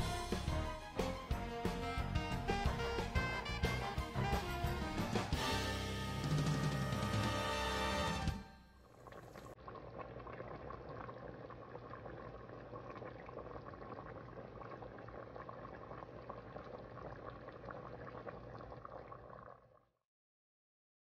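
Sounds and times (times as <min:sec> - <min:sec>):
soup bubbling in a pot: 0:08.8 - 0:20.0.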